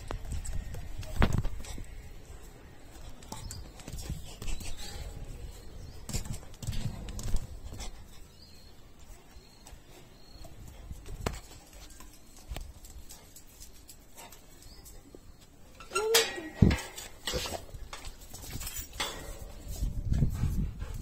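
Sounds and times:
footsteps on stone and tile: 0:00.0 - 0:15.6.

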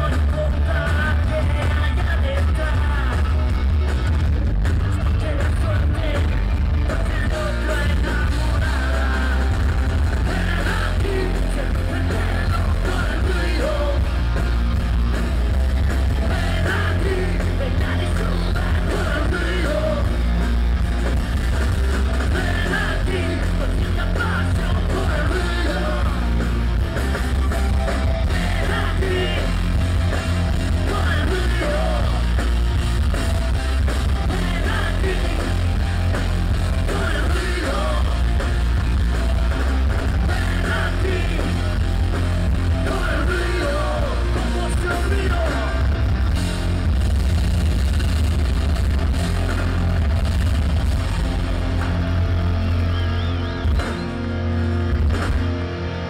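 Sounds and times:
bass guitar: 0:00.0 - 0:56.0
drums: 0:00.0 - 0:56.0
electric guitars: 0:00.0 - 0:56.0
person singing: 0:04.6 - 0:14.3, 0:16.2 - 0:20.3, 0:22.2 - 0:26.5, 0:28.2 - 0:29.7, 0:30.7 - 0:32.4, 0:36.8 - 0:38.5, 0:40.1 - 0:41.8, 0:42.7 - 0:45.9.

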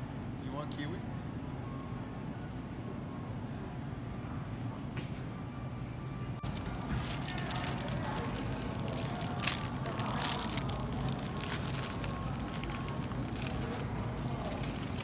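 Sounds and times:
distant shoppers' voices: 0:02.3 - 0:15.0
crackling rustles: 0:06.4 - 0:15.0.

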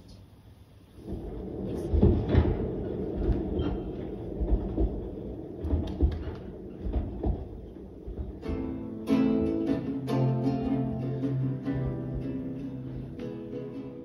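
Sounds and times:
low rumbling: 0:00.2 - 0:14.0
irregular knocks: 0:01.1 - 0:09.8
acoustic guitar playing: 0:08.0 - 0:14.0.

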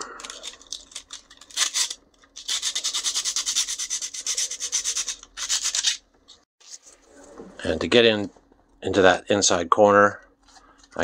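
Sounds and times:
sandpaper rubbing on plastic: 0:01.5 - 0:06.0.

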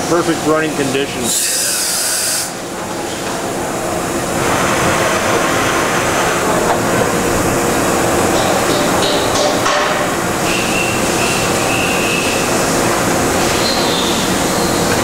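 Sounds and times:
machine running noise: 0:00.0 - 0:15.0
brief air hiss: 0:01.3 - 0:02.6.

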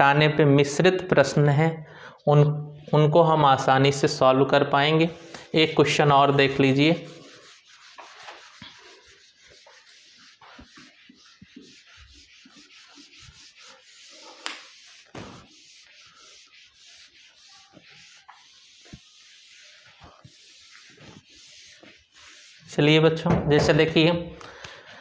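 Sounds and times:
duster scrubbing whiteboard: 0:04.8 - 0:24.0.

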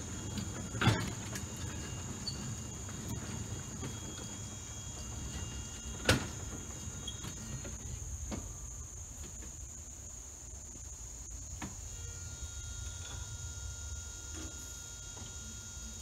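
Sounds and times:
rail cars clanking: 0:00.0 - 0:09.6
small train rolling on track: 0:00.0 - 0:09.7
insects droning: 0:00.0 - 0:16.0.

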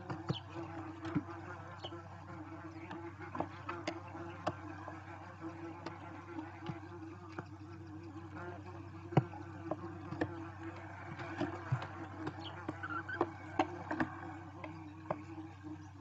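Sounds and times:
steady low buzz: 0:00.0 - 0:16.0
owl chicks scratching on nest debris: 0:09.2 - 0:14.2.

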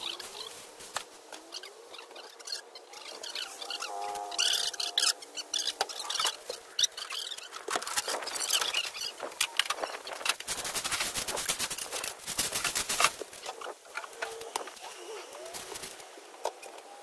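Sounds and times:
footsteps on dry leaves: 0:00.0 - 0:01.7
rake scraping dry leaves: 0:00.0 - 0:16.1.

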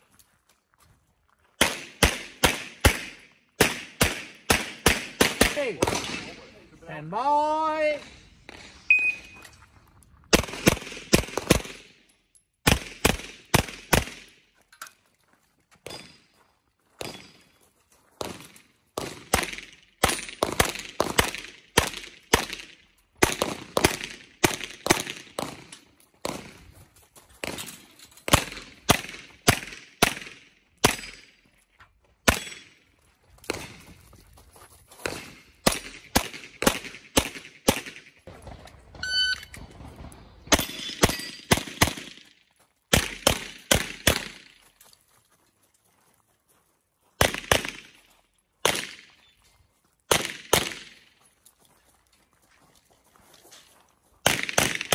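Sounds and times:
shot timer beep: 0:08.9 - 0:09.5, 0:39.0 - 0:39.6
handgun shots: 0:42.9 - 0:44.5.

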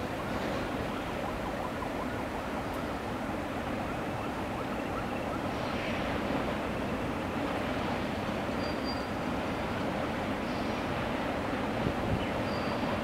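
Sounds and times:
train rumbling: 0:00.0 - 0:01.5, 0:05.0 - 0:13.0
road traffic: 0:00.0 - 0:13.0.

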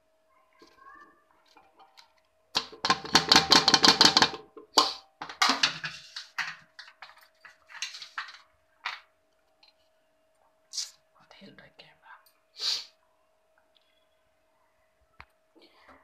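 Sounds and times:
onion pieces clattering into pot: 0:01.5 - 0:09.0
board knocking on pot: 0:02.6 - 0:06.0.

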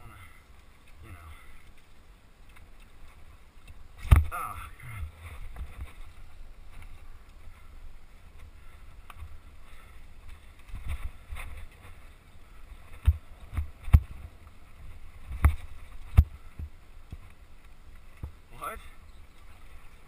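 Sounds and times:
bike knocking on bumps: 0:12.9 - 0:14.2, 0:15.3 - 0:17.3.

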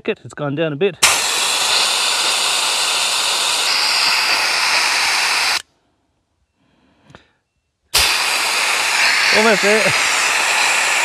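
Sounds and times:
air hissing out of tyres: 0:01.0 - 0:05.7, 0:07.9 - 0:11.0.

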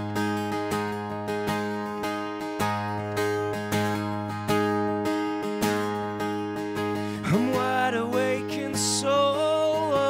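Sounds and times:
acoustic guitar strumming: 0:00.0 - 0:10.0.

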